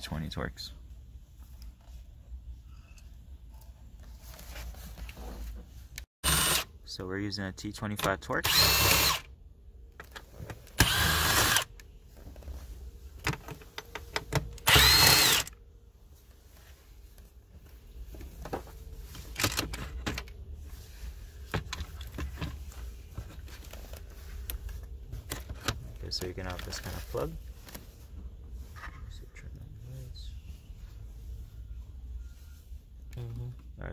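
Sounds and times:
power drill whine: 0:06.2 - 0:06.6, 0:08.4 - 0:09.2, 0:10.8 - 0:11.7, 0:14.7 - 0:15.5.

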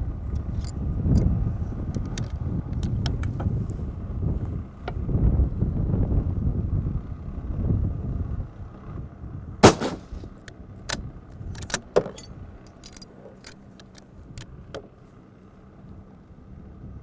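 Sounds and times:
rifle shot: 0:09.6 - 0:10.3
metallic clicks and clacks: 0:10.9 - 0:14.8.

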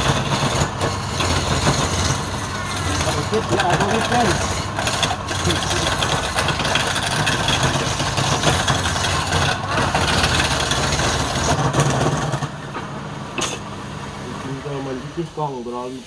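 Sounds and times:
chisel scraping spinning wood: 0:00.0 - 0:12.8
lathe motor humming: 0:00.0 - 0:15.8.

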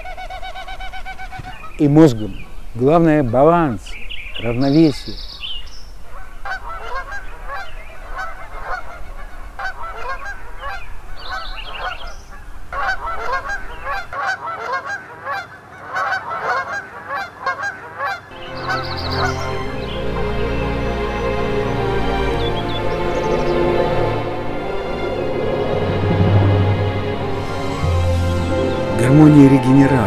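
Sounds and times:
geese honking: 0:00.0 - 0:04.7, 0:06.0 - 0:30.0
music: 0:18.4 - 0:30.0.

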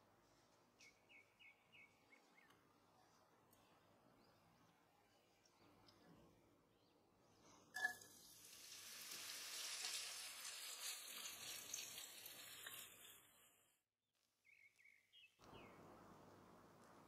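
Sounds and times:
onion sizzling in oil: 0:07.8 - 0:13.7.

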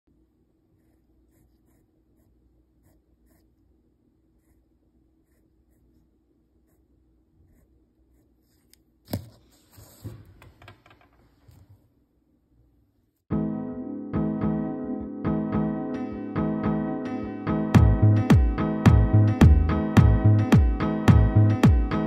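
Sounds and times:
pencil scratching on paper: 0:00.8 - 0:03.7, 0:04.3 - 0:10.3.

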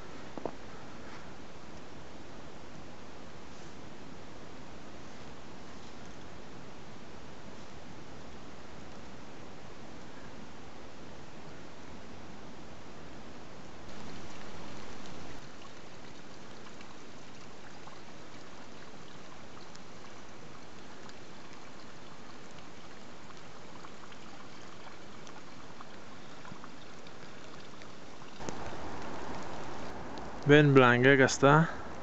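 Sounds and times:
faint ticks: 0:25.0 - 0:30.5.

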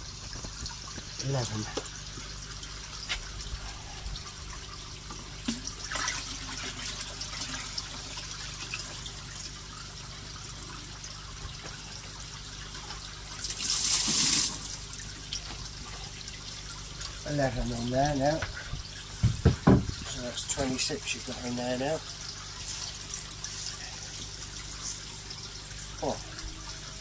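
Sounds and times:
fountain water pattering on pond: 0:00.0 - 0:19.3.

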